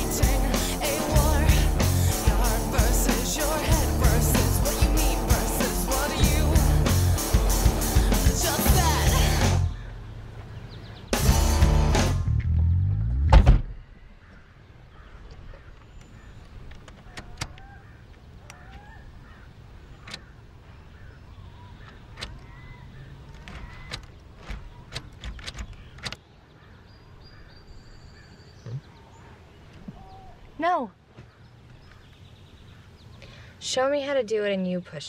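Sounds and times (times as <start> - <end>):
music: 0.0 - 9.8, 11.1 - 13.3
faint bird chirps: 13.8 - 30.6
sharp clicks and knocks: 23.3 - 26.2.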